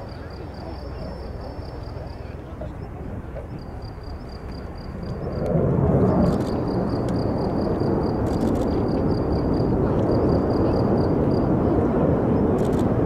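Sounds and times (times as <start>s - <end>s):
jet flying past: 0.0s - 13.0s.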